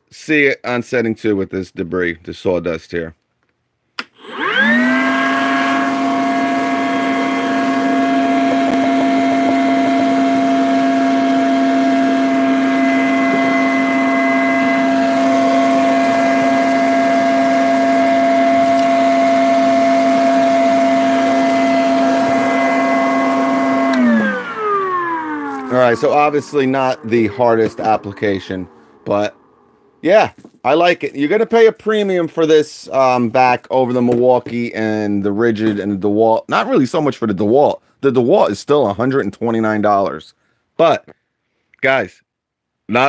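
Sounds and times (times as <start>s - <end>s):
wet dry vac motor whine: 4.2s - 30.0s.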